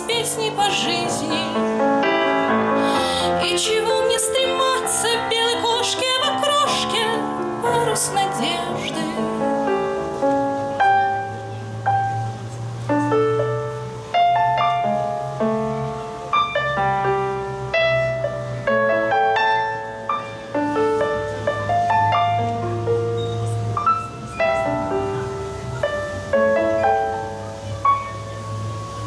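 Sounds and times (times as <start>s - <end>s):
digital keyboard piano chords: 0.0s - 29.0s.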